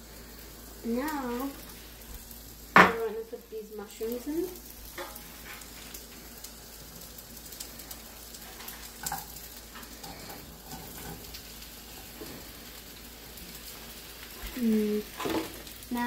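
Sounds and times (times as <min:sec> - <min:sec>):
onions sizzling in a pan: 0:00.0 - 0:16.0
mushrooms tapping into pan: 0:02.7 - 0:03.1.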